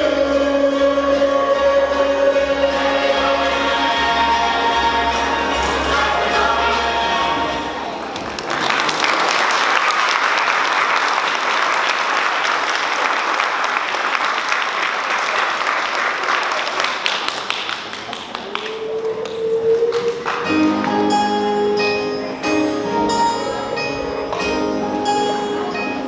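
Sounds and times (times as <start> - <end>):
audience applauding: 8.0 - 20.8.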